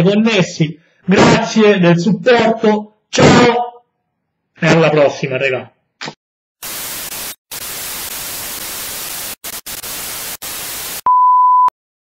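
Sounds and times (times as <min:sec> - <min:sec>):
television static hiss: 0:06.6 - 0:11.0
test tone beep: 0:11.1 - 0:11.7.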